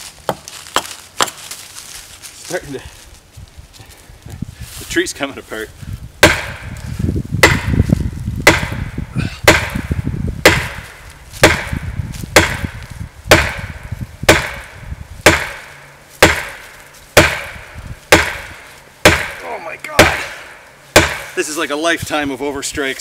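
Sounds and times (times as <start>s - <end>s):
axe handle striking tree trunk: 0.2s - 1.4s, 6.2s - 21.4s.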